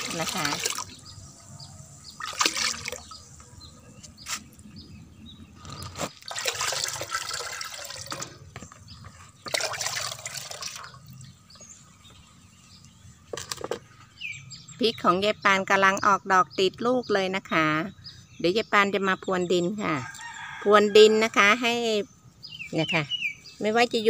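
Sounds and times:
liquid pouring and splashing: 0.0 - 1.0, 2.2 - 3.2, 5.9 - 8.6, 9.4 - 11.2.

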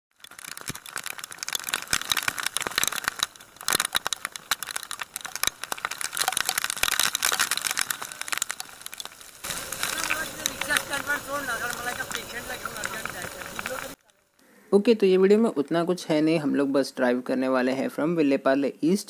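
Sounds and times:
rain drops hitting camera: 0.1 - 14.4.

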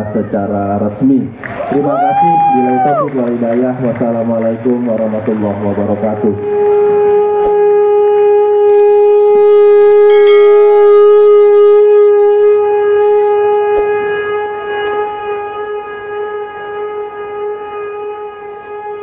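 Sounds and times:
siren steady tone: 7.2 - 14.7.

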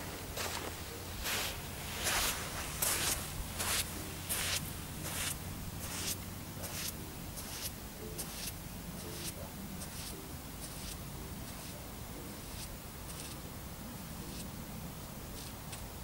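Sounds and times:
footsteps on damp sand: 0.0 - 8.5
steady low hum: 0.0 - 16.0.

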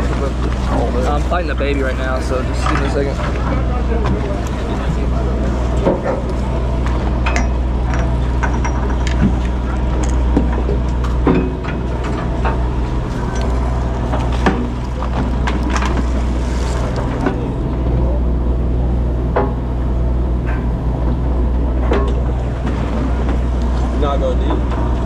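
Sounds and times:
knocks and clatter: 0.0 - 18.0, 20.4 - 25.0
boat engine droning: 0.0 - 25.0.

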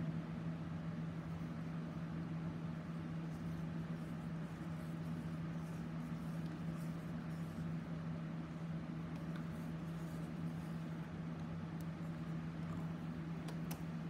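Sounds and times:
low mechanical hum: 0.0 - 14.0
faint soft rustles: 2.8 - 14.0.

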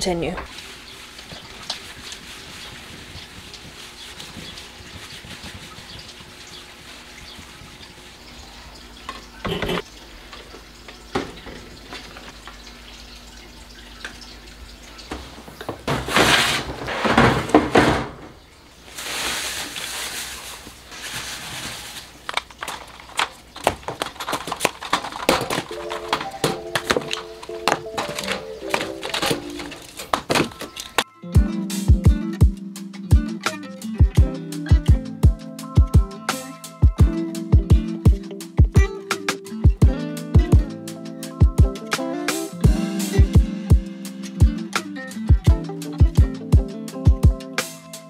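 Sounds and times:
sponge wiping stone countertop: 0.5 - 7.5, 15.9 - 17.2, 18.9 - 22.2
plastic pods clattering into bin: 21.0 - 31.0
background music: 25.7 - 48.0.

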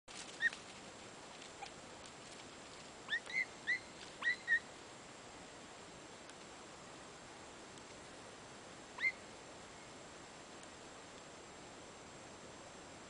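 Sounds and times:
distant hound yelping: 3.1 - 4.7, 9.0 - 9.2.

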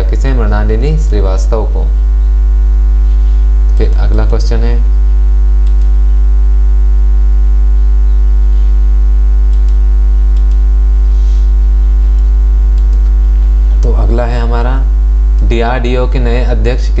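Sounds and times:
electrical mains hum: 0.0 - 17.0
faint clicks: 5.6 - 6.0, 9.5 - 10.6, 12.1 - 13.9.

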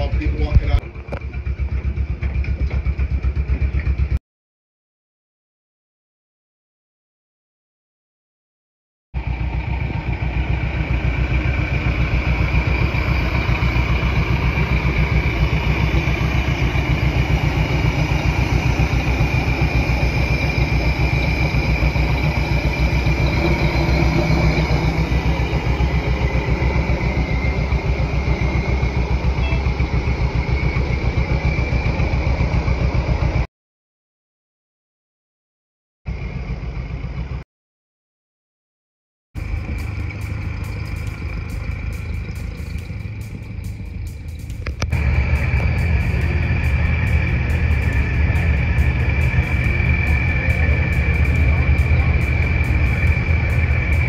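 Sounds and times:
miniature train engine running: 9.2 - 33.5, 39.4 - 54.0.

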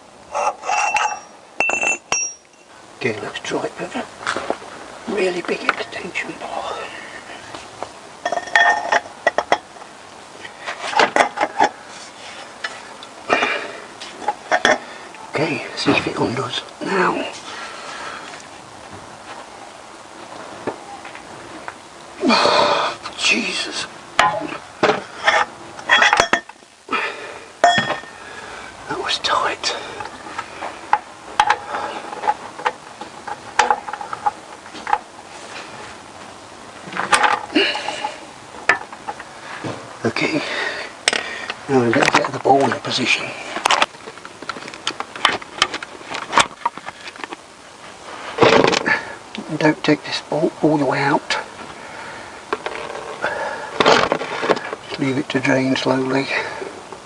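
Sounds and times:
metal tools clanking: 0.3 - 2.7, 8.2 - 9.7, 25.2 - 26.6, 27.6 - 28.2.

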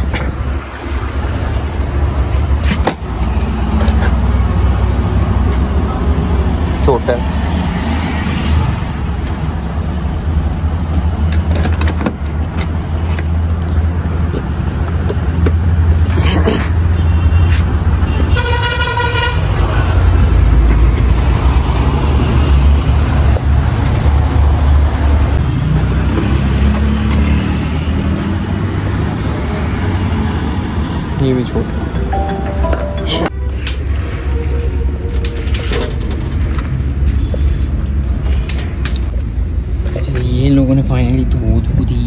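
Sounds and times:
street traffic rumble: 0.0 - 42.0
car horn: 16.9 - 19.5.

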